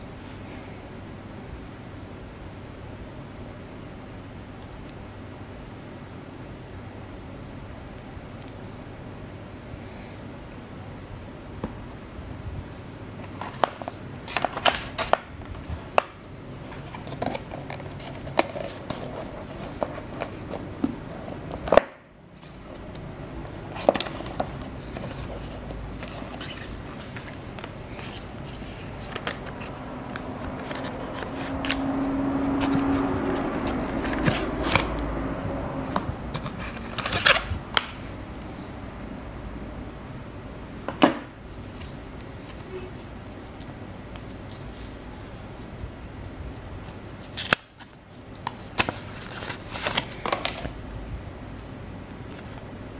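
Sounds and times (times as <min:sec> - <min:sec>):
cardboard box handling rustles: 0:16.6 - 0:21.8, 0:23.5 - 0:35.0.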